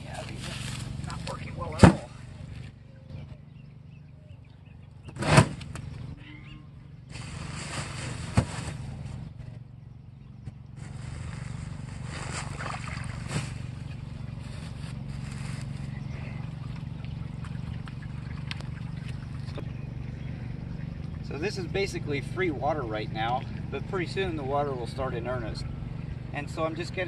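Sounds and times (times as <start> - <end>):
scraping and shuffling: 0.0 - 2.0, 7.1 - 9.2, 10.8 - 16.0.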